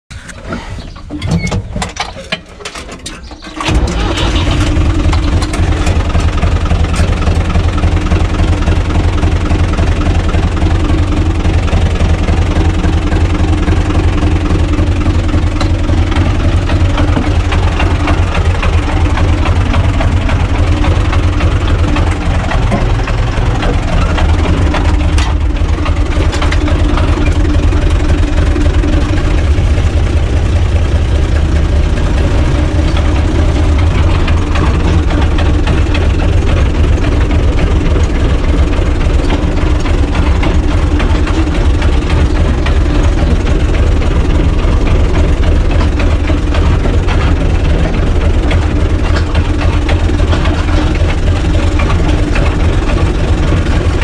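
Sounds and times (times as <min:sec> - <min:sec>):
diesel tractor engine starting and idling: 0:00.1 - 0:54.0.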